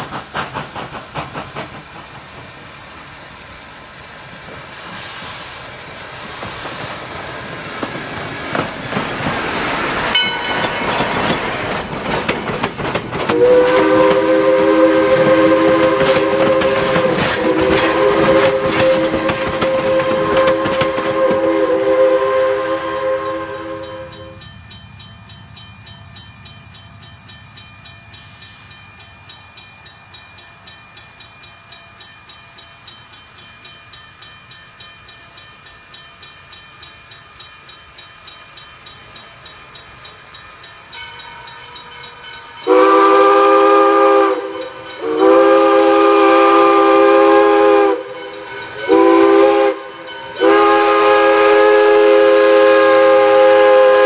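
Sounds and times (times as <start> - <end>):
steam locomotive chuffing: 0.0 - 54.0
steam whistle blasts: 13.3 - 24.4, 42.3 - 54.0.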